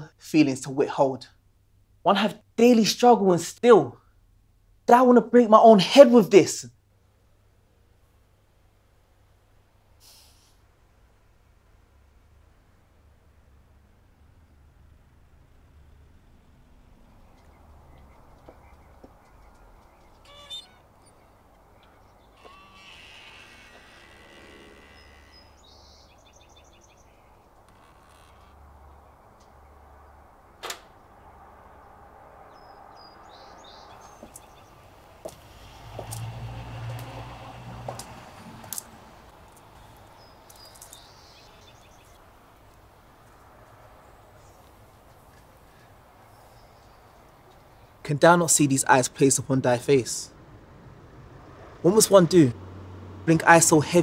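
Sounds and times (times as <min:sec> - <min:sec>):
bird chirping: 0:15.9 - 0:30.2, 0:32.4 - 0:35.4, 0:39.3 - 0:42.6, 0:44.0 - 0:48.0.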